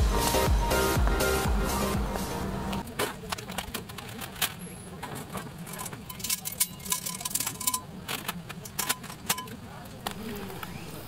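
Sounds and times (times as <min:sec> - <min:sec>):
background music: 0:00.0 - 0:02.8
metal panels clinking and rattling: 0:03.3 - 0:09.6.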